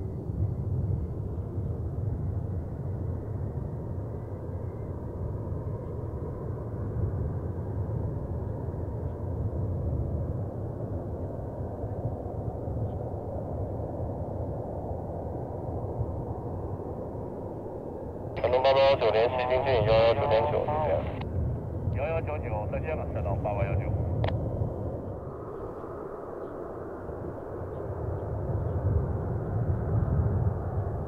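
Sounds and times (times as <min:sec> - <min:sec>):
distant jet engines rumbling: 0:01.1 - 0:31.0
faint high whine: 0:14.6 - 0:31.0.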